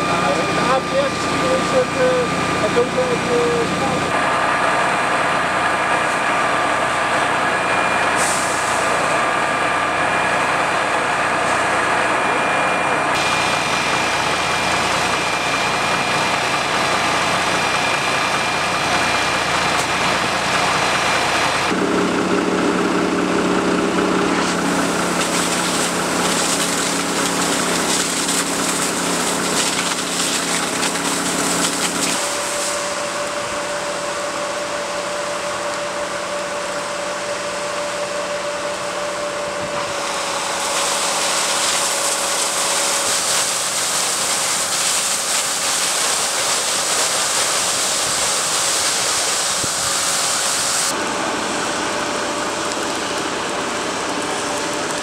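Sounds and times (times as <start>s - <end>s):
fire engine pumping water: 0.0s - 55.0s
steady higher hum: 0.0s - 55.0s
hose jet hissing: 8.1s - 9.1s, 24.4s - 33.2s, 39.8s - 50.9s.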